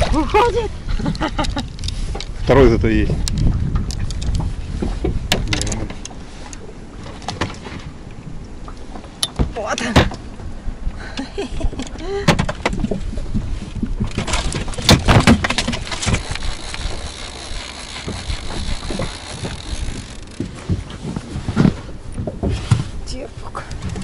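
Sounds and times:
handling knocks and clicks: 5.1s - 6.1s, 14.0s - 22.9s.

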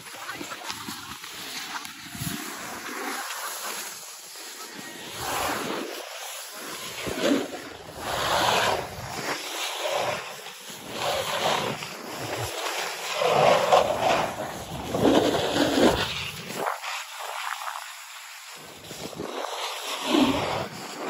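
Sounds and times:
ski edges scraping snow: 0.0s - 21.0s
wind buffeting microphone: 13.7s - 16.9s.

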